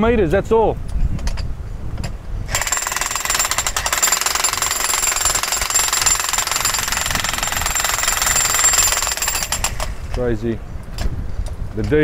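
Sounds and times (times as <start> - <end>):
jackhammer hammering concrete: 2.5 - 10.1.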